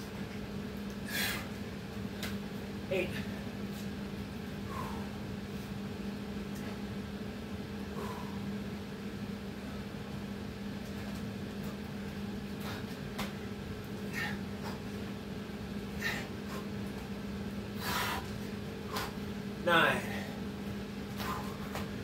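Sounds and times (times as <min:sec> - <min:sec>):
low electrical hum: 0:00.0 - 0:22.0
man breathing hard: 0:01.0 - 0:01.6, 0:04.6 - 0:05.7, 0:07.8 - 0:08.7, 0:12.6 - 0:13.0, 0:14.1 - 0:14.9, 0:15.9 - 0:16.8, 0:17.7 - 0:19.2, 0:21.1 - 0:21.9.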